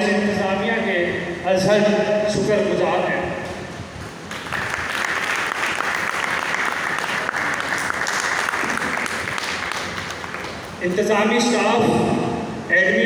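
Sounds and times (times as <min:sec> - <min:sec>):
audience applauding: 0:04.2 - 0:10.8.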